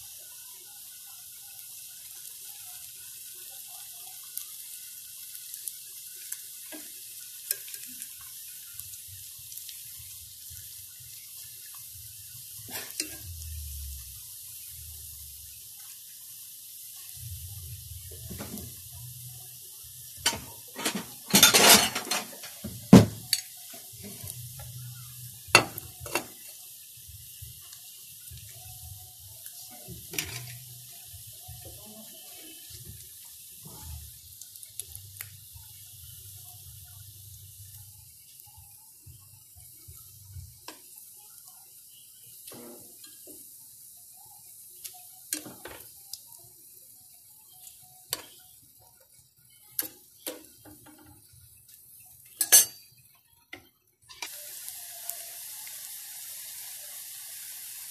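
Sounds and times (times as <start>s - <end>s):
faint oil sizzle: 0.0s - 57.9s
metal tongs clinking: 20.2s - 23.8s, 30.1s - 30.6s, 52.3s - 52.9s.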